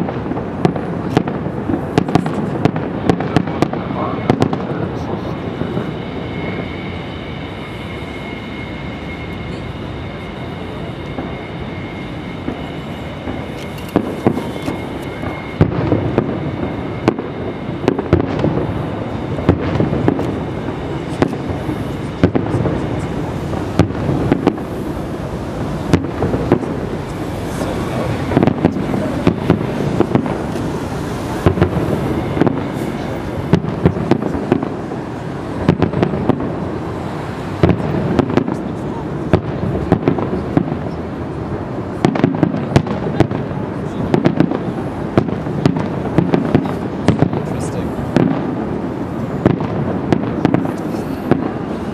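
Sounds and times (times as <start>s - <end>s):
firework shells bursting: 0.0s - 38.7s
background murmur: 0.0s - 51.9s.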